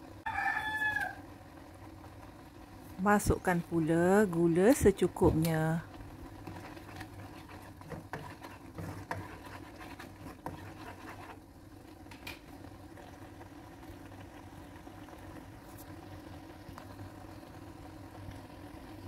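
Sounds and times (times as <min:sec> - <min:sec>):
soft hiss of cooking paste: 0:00.4 - 0:19.0
spatula scraping in wok: 0:06.3 - 0:12.4.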